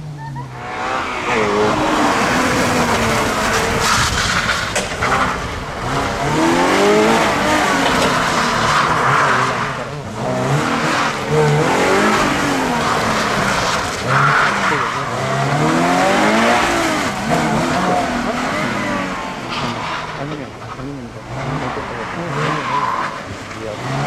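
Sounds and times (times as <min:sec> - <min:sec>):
car engine revving: 0:00.0 - 0:24.0.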